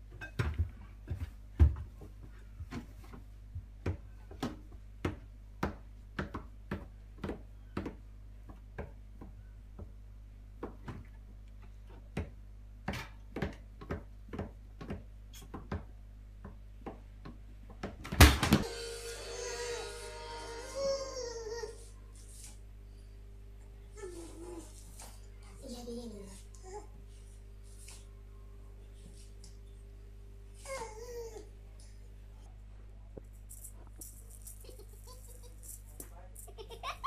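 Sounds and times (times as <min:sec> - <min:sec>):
music: 0:18.6 - 0:20.8.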